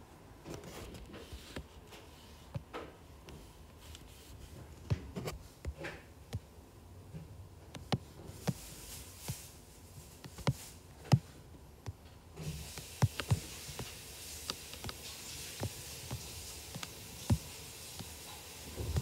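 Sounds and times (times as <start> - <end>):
faint hiss: 12.4 - 19.0.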